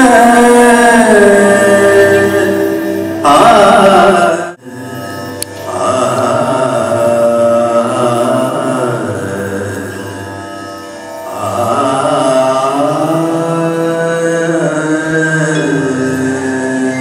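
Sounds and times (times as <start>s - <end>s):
slow song with long sung notes: 0.0s - 17.0s.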